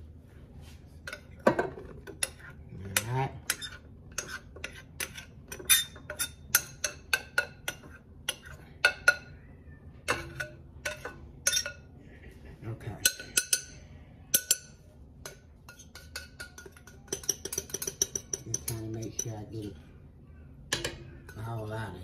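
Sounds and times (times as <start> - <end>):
glass bowl knocking on metal bowl: 15.3 - 19.4.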